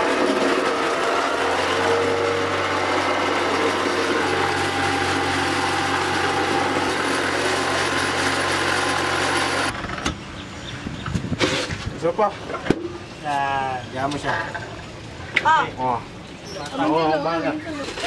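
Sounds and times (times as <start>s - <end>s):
machine motor running: 0.0s - 10.0s.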